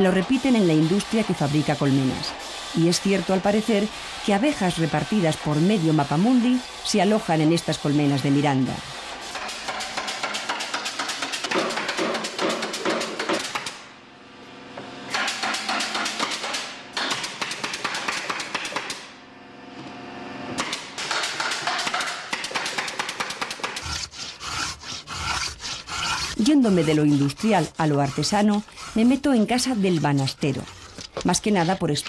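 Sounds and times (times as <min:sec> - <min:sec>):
hammering knocks on wood: 0:09.4 - 0:13.8, 0:15.1 - 0:19.0, 0:20.6 - 0:23.8.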